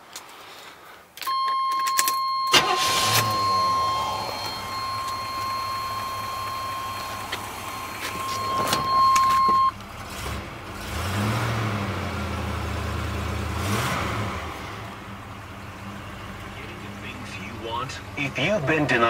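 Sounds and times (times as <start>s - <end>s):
clicks: 1.2s - 9.7s
car engine starting and idling: 1.2s - 19.0s
dashboard warning buzzer: 1.3s - 9.7s.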